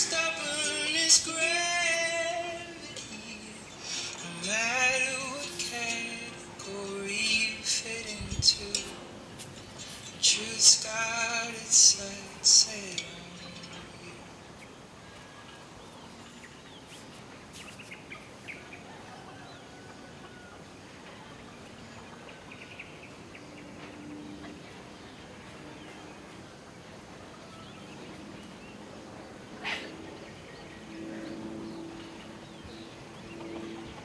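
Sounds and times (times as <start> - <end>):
soft steady hiss: 0.0 - 34.0
distant chicken calls: 14.2 - 30.6.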